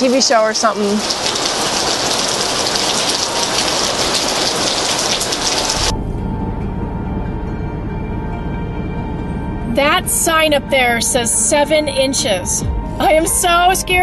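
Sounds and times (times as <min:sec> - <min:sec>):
heavy rain pouring: 0:00.0 - 0:05.9.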